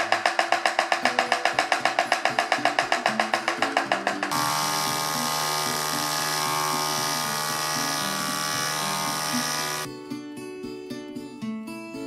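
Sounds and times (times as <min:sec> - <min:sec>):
vibratory tumbler buzzing: 0:04.3 - 0:09.9.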